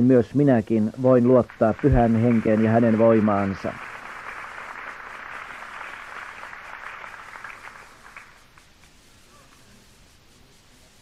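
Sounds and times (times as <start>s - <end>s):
audience applause: 1.3s - 8.8s.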